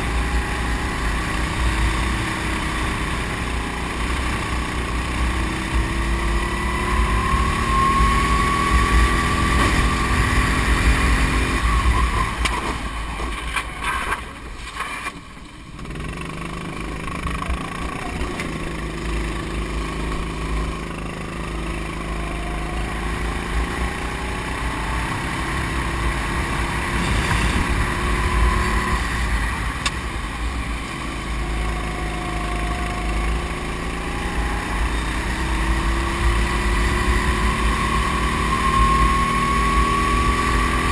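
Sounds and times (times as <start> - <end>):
go-kart engine at racing speed: 0.0 - 40.9
low wind rumble: 22.8 - 32.4.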